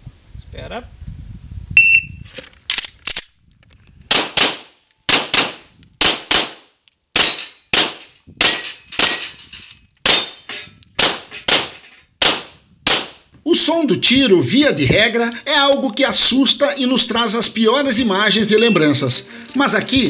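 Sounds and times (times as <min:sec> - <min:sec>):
pistol shots in rapid pairs: 0:04.1 - 0:09.2, 0:10.1 - 0:10.3, 0:11.0 - 0:13.2.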